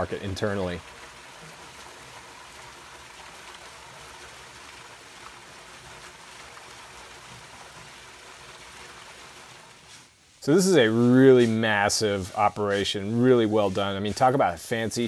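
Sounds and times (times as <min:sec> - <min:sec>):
water gushing onto tiled floor: 0:00.0 - 0:09.9.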